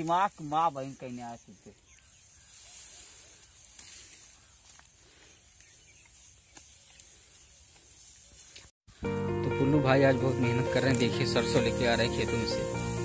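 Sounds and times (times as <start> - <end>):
light snaps of stalks: 0.0 - 8.7, 10.8 - 11.2
sickle cutting dry wheat: 0.0 - 8.8, 10.2 - 13.0.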